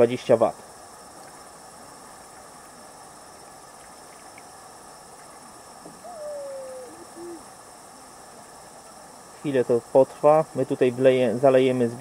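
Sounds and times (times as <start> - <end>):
crickets chirring: 0.0 - 12.0
faint hiss: 0.0 - 12.0
owl hooting: 5.9 - 8.1.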